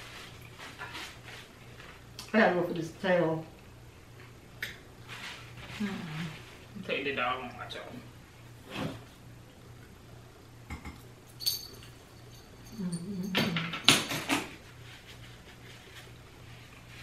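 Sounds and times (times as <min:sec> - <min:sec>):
glass bowls clinking: 0:10.8 - 0:14.1.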